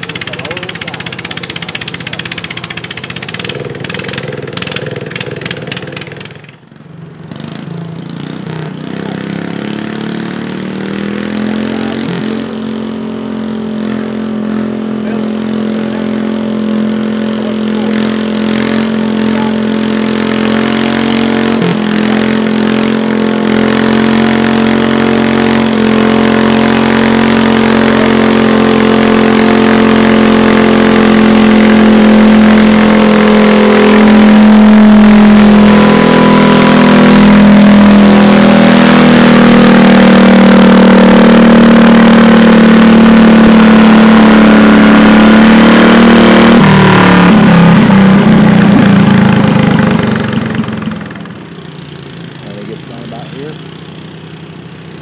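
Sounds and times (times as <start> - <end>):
garden tractor engine idling: 0.0 - 6.8, 15.0 - 20.4, 48.4 - 55.0.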